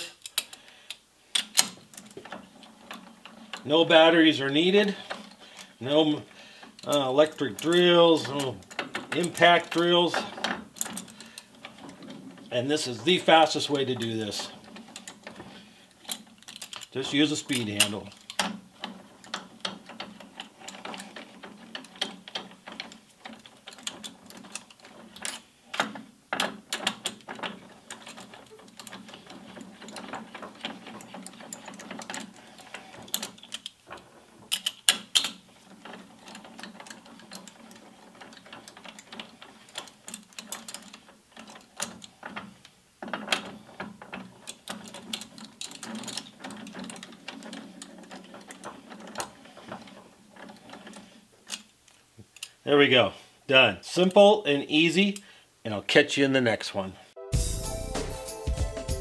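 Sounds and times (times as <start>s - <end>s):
loud metal clicks: 0.0s - 3.7s, 13.6s - 52.6s
lathe chuck jaws clicking and rattling: 0.0s - 52.6s.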